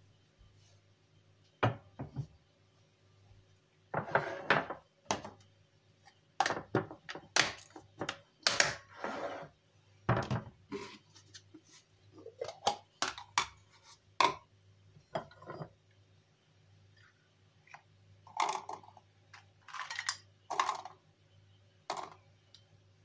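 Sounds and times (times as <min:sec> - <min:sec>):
faint low hum: 0:00.0 - 0:23.0
dishes clinking and scraping: 0:04.0 - 0:04.8, 0:15.1 - 0:15.8.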